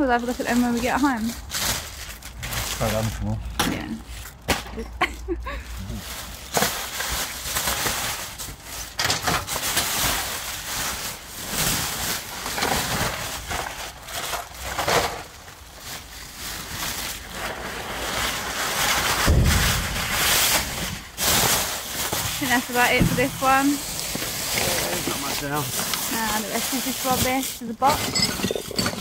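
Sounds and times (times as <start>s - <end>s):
plastic bags rustling and crinkling: 0.0s - 29.0s
low rumble: 19.3s - 21.1s.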